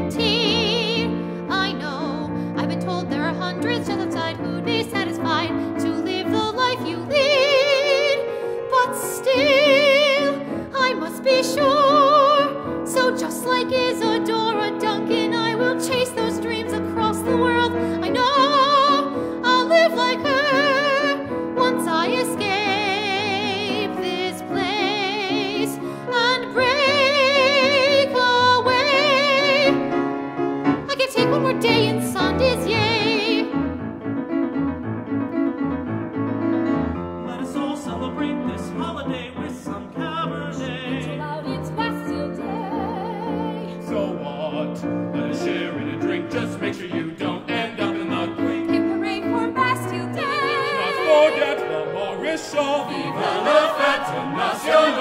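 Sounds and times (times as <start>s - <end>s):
piano accompaniment: 0.0s - 55.0s
person singing with vibrato: 37.3s - 55.0s.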